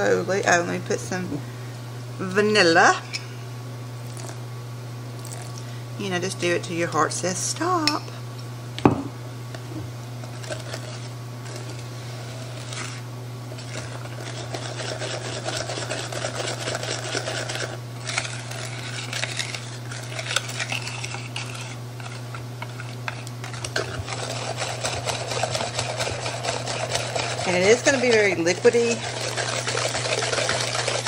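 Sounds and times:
utensil scraping a bowl: 0:10.2 - 0:31.0.

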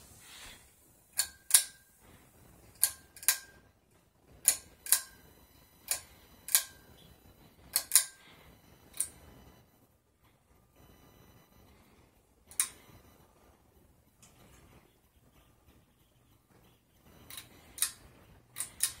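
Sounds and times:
pull-chain switch clicks: 0:18.6 - 0:19.0.

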